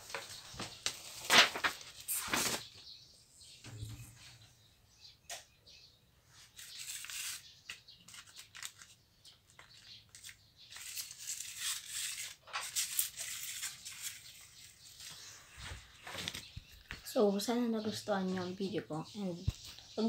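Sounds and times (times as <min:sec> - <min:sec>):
paper crackles: 0:00.0 - 0:02.8, 0:06.5 - 0:17.0
paper rustling and scraping: 0:00.0 - 0:02.8, 0:06.4 - 0:17.0.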